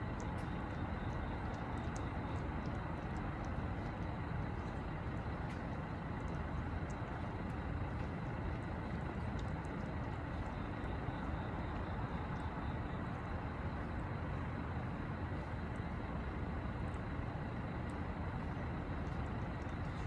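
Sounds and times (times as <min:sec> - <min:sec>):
distant traffic rumble: 0:00.0 - 0:20.0
faint soft clicks: 0:00.1 - 0:12.6.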